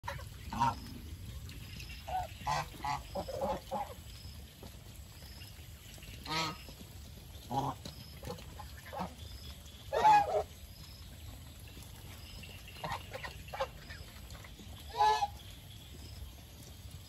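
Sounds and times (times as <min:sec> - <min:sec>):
geese honking: 0:02.1 - 0:04.0, 0:06.3 - 0:06.6, 0:09.9 - 0:10.5, 0:14.9 - 0:15.4.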